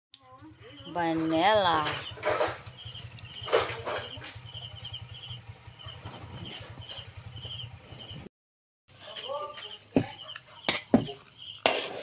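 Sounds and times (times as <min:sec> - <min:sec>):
crickets chirping: 0:00.2 - 0:08.3, 0:08.9 - 0:12.0
high insect trill: 0:00.2 - 0:08.3, 0:08.9 - 0:12.0
low steady hum: 0:00.2 - 0:08.3.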